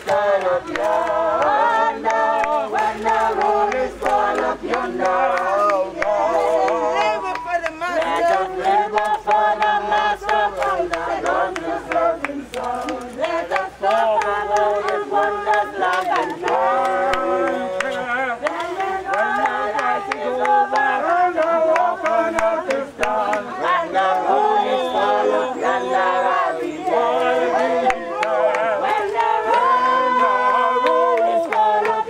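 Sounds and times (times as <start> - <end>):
group singing: 0.0 - 32.0.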